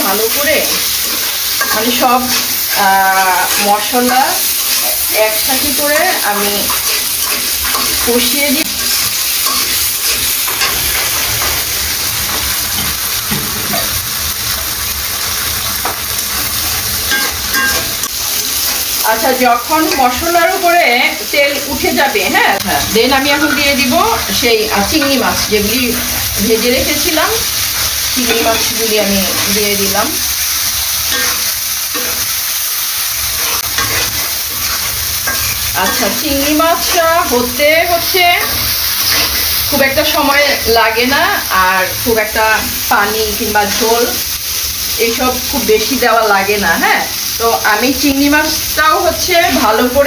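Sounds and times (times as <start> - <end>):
paste sizzling in oil: 0.0 - 50.0
metal spatula scraping pan: 0.5 - 11.7, 33.4 - 39.6.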